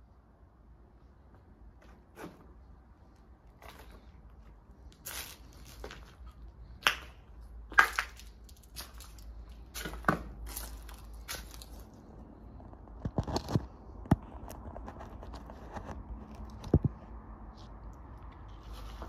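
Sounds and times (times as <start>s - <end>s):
footsteps crunching over debris: 3.5s - 12.1s.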